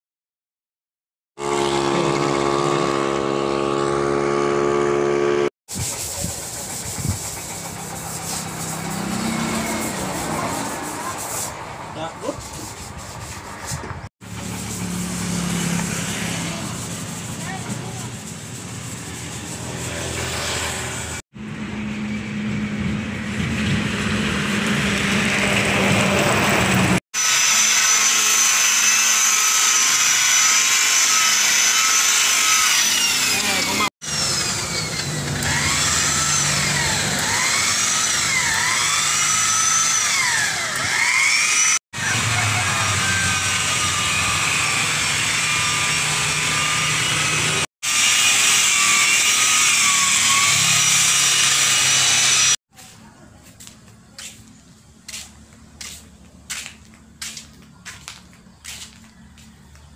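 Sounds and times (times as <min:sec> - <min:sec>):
electric polisher motor whine: 0:01.4 - 0:05.5, 0:27.2 - 0:52.6.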